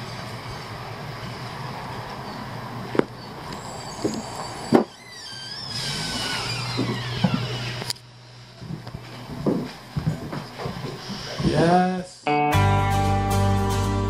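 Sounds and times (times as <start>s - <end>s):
door hinges squealing: 1.9s - 8.0s, 10.8s - 11.7s
footsteps: 8.6s - 11.7s.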